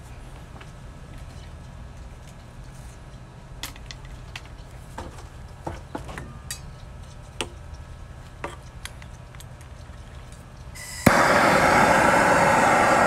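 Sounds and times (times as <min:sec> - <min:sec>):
steady low rumble: 0:11.1 - 0:13.0.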